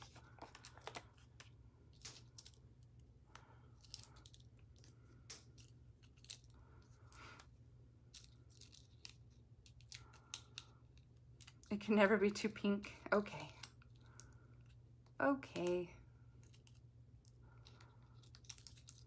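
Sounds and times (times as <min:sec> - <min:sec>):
paper crinkles and ticks: 0:00.0 - 0:11.8, 0:16.4 - 0:19.0
low steady hum: 0:00.0 - 0:19.0.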